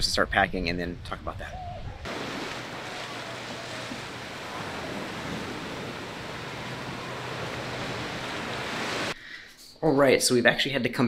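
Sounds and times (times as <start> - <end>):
surf washing onto beach: 2.1 - 9.2.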